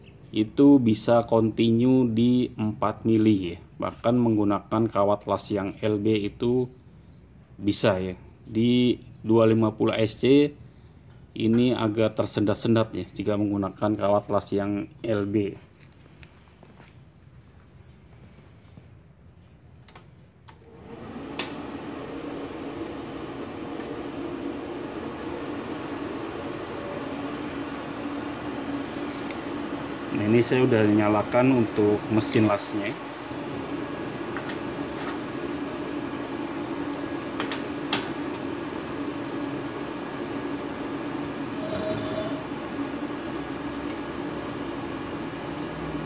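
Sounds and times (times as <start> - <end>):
cooling fan humming: 19.6 - 46.0.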